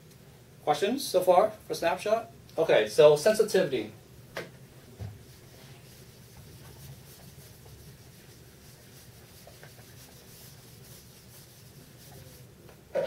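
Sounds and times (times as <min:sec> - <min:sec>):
eraser rubbing on whiteboard: 0:05.2 - 0:12.6.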